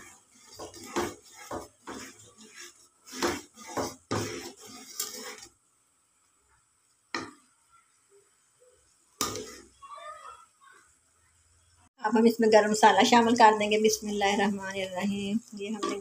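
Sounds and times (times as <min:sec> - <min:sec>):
steel spoon scraping metal pot: 0:00.0 - 0:05.6, 0:09.2 - 0:09.8.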